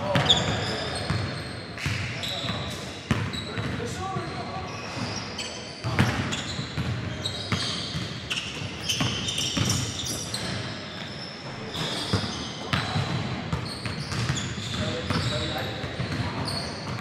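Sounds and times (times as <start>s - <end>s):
sneaker squeaks: 0.0s - 17.0s
basketball bouncing on wooden floor: 12.1s - 14.4s.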